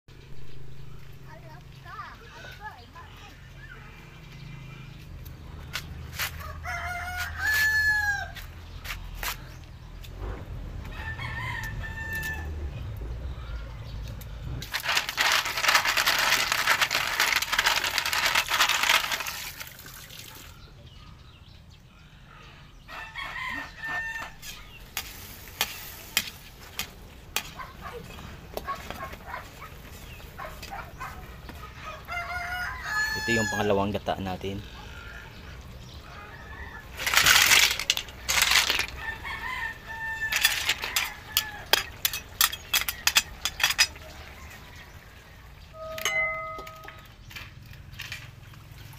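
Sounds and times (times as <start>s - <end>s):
rooster crowing: 6.4s - 8.5s, 10.8s - 12.6s, 22.9s - 24.6s, 31.8s - 33.8s, 36.0s - 37.0s, 38.8s - 42.0s
rough even noise: 14.4s - 19.8s.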